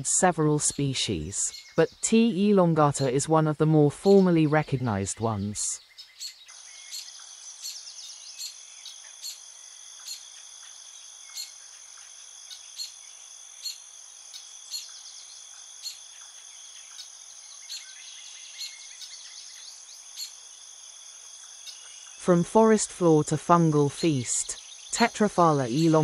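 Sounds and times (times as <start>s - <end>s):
insects trilling: 4.3s - 22.2s, 24.4s - 26.0s
faint bird twitters: 5.8s - 20.4s
sharp insect chirp: 5.9s - 22.2s.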